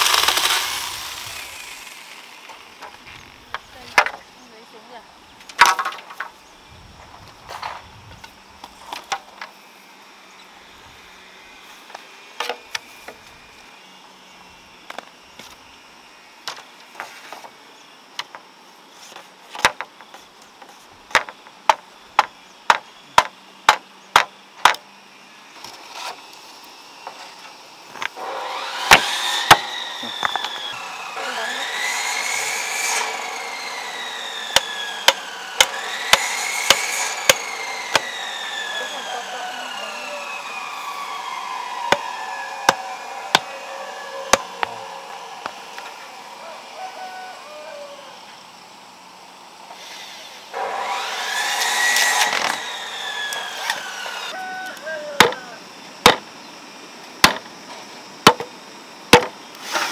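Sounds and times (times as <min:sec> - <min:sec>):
wood knocking on bamboo: 0:02.8 - 0:04.2, 0:21.1 - 0:24.8, 0:55.2 - 0:55.4, 0:56.0 - 0:56.2, 0:57.2 - 0:57.5, 0:58.3 - 0:58.5, 0:59.1 - 0:59.4
whine rising and falling in pitch: 0:33.0 - 0:48.3.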